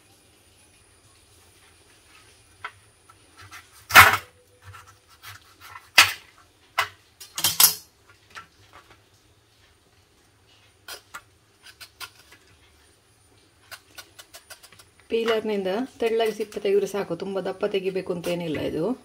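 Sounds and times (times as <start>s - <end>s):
knife cutting rind: 3.4s - 6.3s, 10.8s - 12.5s, 13.6s - 15.4s
peeler scraping rind: 10.8s - 12.6s, 13.6s - 16.7s.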